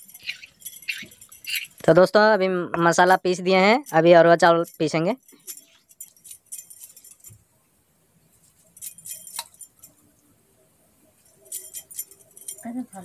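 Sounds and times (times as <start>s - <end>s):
sharp clinks: 0.0s - 2.0s, 4.7s - 7.4s, 8.6s - 10.0s, 11.3s - 13.0s
glass bangles jingling: 0.0s - 2.2s, 2.8s - 7.4s, 8.4s - 10.1s, 11.2s - 13.0s.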